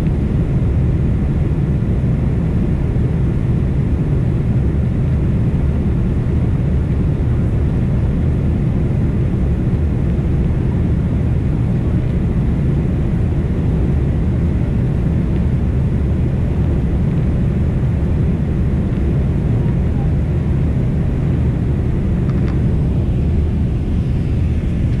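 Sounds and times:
jet engines rumbling in cabin: 0.0s - 25.0s
rushing air: 20.9s - 25.0s.

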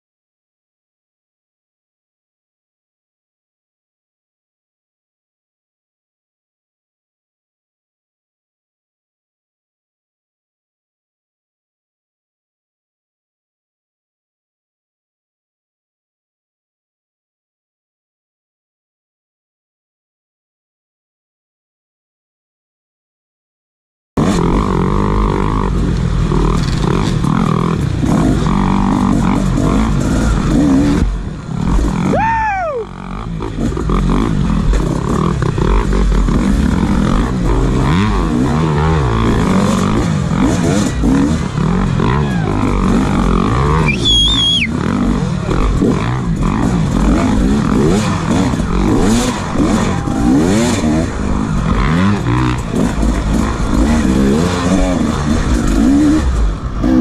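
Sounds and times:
dirt bike engine revving: 24.2s - 57.0s.

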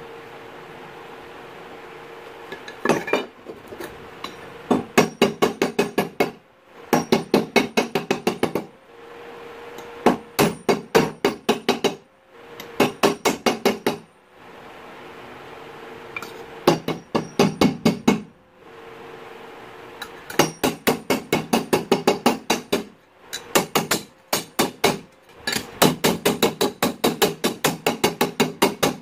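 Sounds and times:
hammer striking metal: 7.0s - 8.7s, 10.1s - 12.0s, 16.2s - 18.2s, 20.0s - 29.0s.

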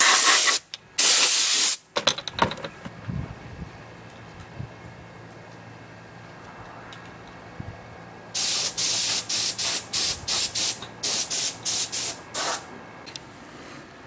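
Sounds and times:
spray gun hissing blasts: 0.0s - 1.8s, 8.4s - 12.7s.

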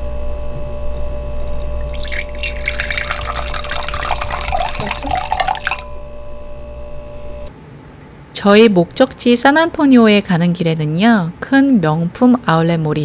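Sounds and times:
steady low hum: 0.0s - 13.0s
wine pouring into a glass: 1.4s - 6.0s.

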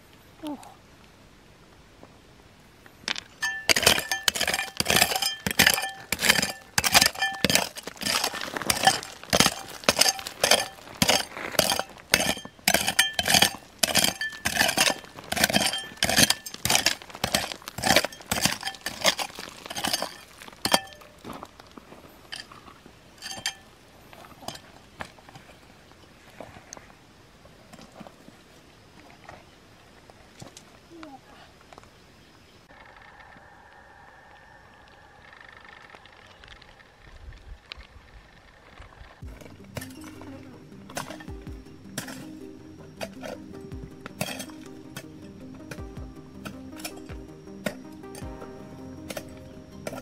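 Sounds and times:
metal tool striking rock: 3.1s - 21.2s, 23.2s - 23.7s, 24.4s - 25.2s, 39.2s - 50.0s.

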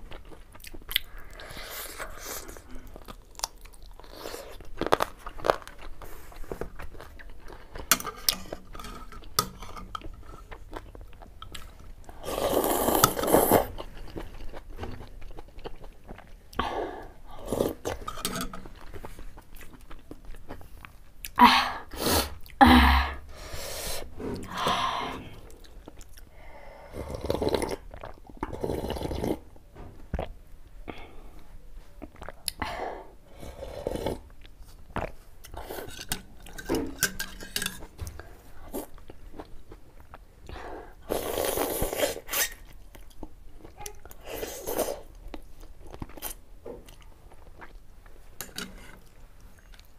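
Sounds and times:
chewing: 0.1s - 16.6s, 17.4s - 21.4s, 27.1s - 29.4s, 32.0s - 32.6s, 41.2s - 49.9s
slurping soup: 11.6s - 14.4s, 26.8s - 29.5s, 33.4s - 34.4s, 41.0s - 42.7s.

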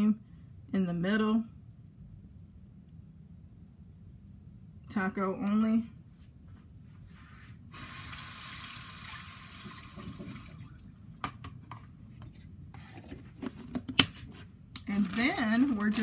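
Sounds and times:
kitchen tap running: 7.7s - 10.9s.

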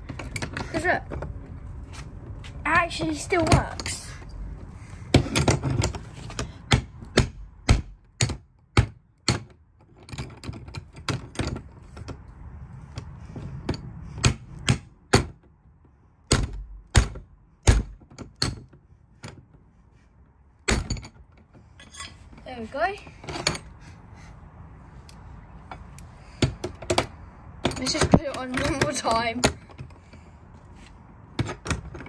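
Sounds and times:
crowbar clanking on padlock: 20.7s - 21.2s.

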